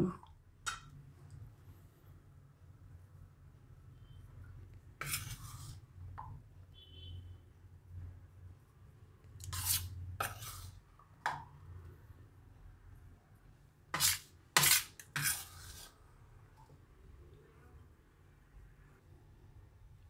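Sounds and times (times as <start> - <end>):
metal spoon scraping dishes: 14.0 - 15.9.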